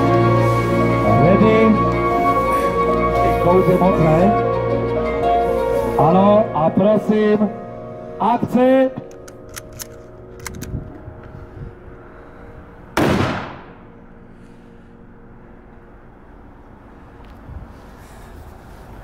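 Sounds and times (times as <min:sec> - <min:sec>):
rifle shot with echo: 0:13.0 - 0:13.9.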